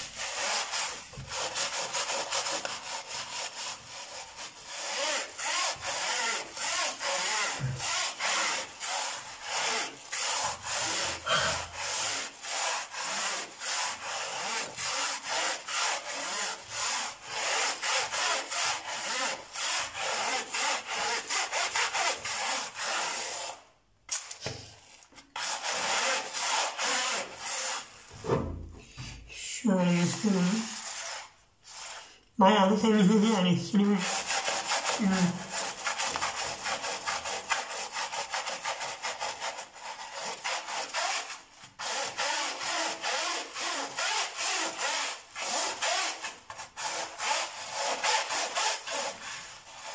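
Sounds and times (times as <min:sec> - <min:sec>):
bristle brush scrubbing metal mesh: 0:29.1 - 0:32.1, 0:32.8 - 0:49.9.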